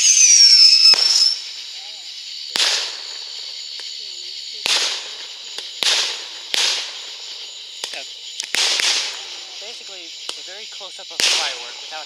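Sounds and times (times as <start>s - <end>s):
fireworks banging: 0.0s - 12.0s.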